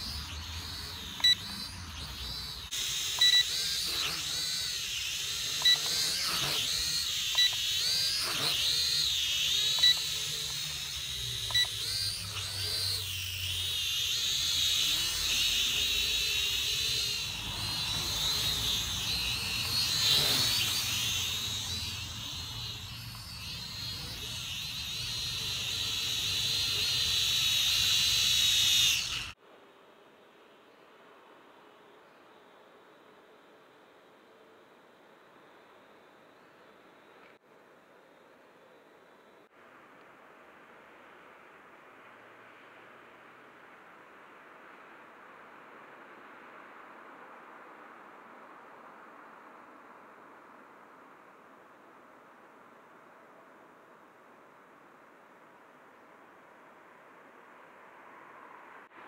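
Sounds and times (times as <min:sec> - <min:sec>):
toy quadcopter motors whining: 0:00.0 - 0:29.4
short beeps: 0:02.9 - 0:03.6, 0:07.3 - 0:07.6, 0:11.5 - 0:11.8.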